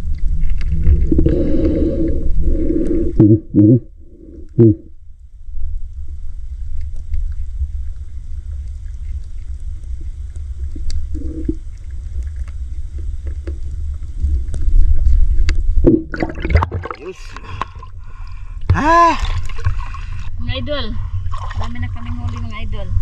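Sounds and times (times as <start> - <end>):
low rumble: 0.0 - 23.0
faint clicks: 6.7 - 15.6.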